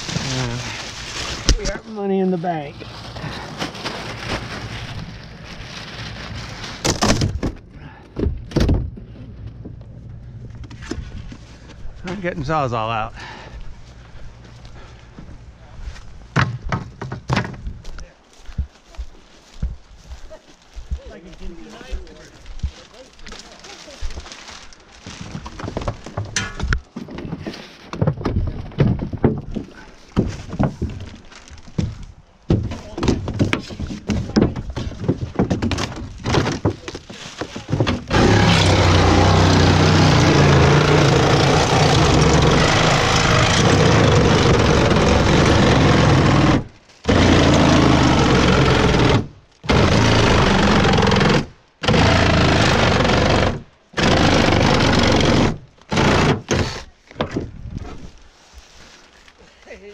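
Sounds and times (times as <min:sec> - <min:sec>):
debris knocking and clattering: 0:25.2 - 0:27.4
reciprocating saw cutting: 0:38.1 - 0:56.9.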